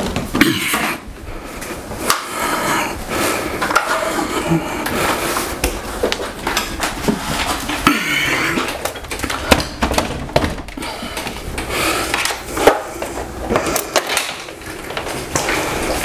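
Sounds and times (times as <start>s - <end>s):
scraping and rubbing: 1.6s - 9.8s.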